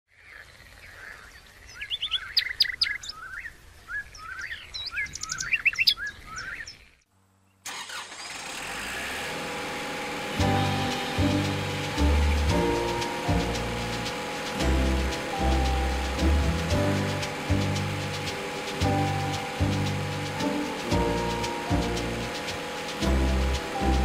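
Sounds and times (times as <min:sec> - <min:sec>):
songbirds chirping and singing: 0:00.1 - 0:07.0
tractor engine running: 0:07.7 - 0:24.0.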